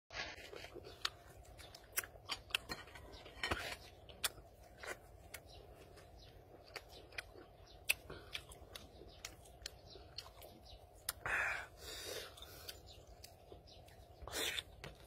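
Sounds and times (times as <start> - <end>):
chewing: 0.1 - 11.2, 12.1 - 15.0
crunching bites: 0.1 - 11.2.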